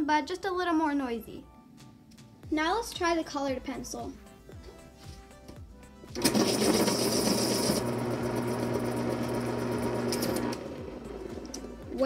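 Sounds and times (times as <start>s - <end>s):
pencil grinding in sharpener: 6.2s - 7.9s
electric pencil sharpener motor hum: 6.2s - 11.7s.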